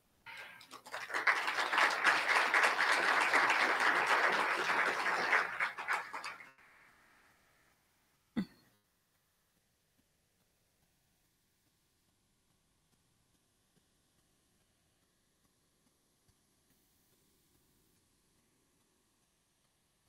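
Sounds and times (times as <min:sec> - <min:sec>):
audience applauding: 0:00.3 - 0:06.6.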